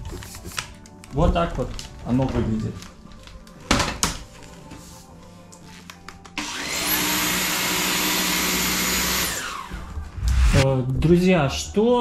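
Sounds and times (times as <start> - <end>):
stick vacuum motor whining: 6.4 - 10.6.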